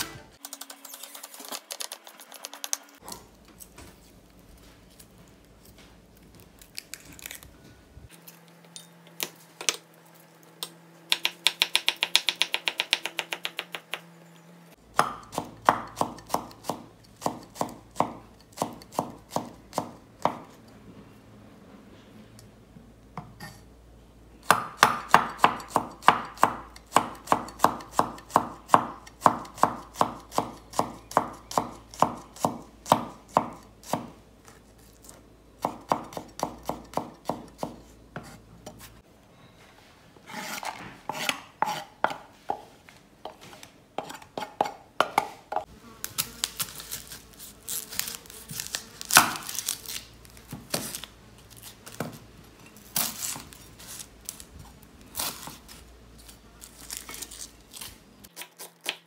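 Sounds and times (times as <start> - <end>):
knife chopping on wooden board: 15.0 - 20.5, 35.6 - 38.8, 48.6 - 49.6.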